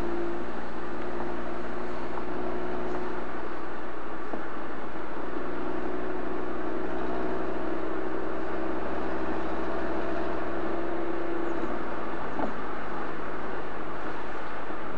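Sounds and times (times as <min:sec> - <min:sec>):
car exhaust droning at cruise: 0:00.0 - 0:14.9.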